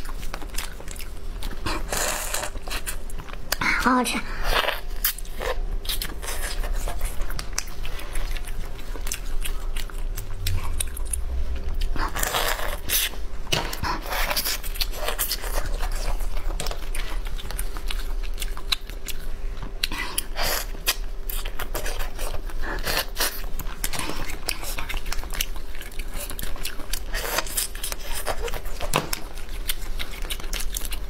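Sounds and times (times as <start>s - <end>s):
crunching and biting shells: 0.0s - 3.6s, 4.4s - 31.0s
wet sucking and chewing: 0.0s - 31.0s.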